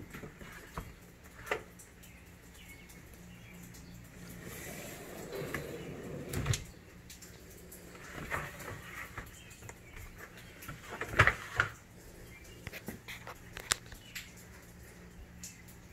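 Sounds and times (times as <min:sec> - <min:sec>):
shelf sliding on drawer slides: 0:04.4 - 0:06.7.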